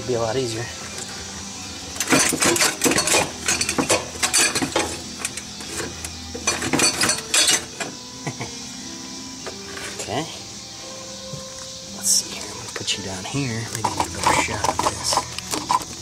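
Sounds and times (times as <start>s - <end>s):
metal pipe clanking against engine parts: 2.0s - 8.0s, 13.6s - 16.0s.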